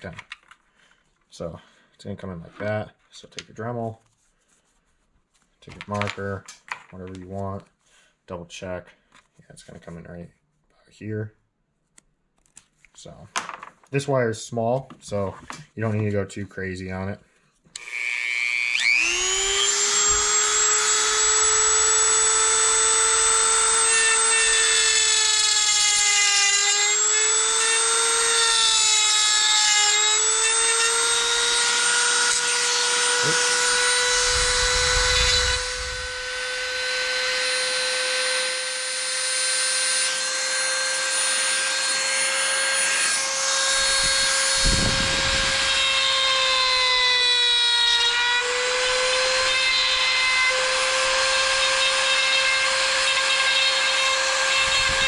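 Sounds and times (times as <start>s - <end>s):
rotary tool whining: 17.8s - 55.0s.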